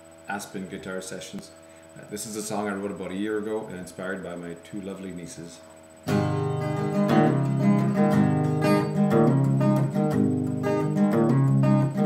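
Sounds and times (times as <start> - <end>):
acoustic guitar strumming: 6.0 - 12.0.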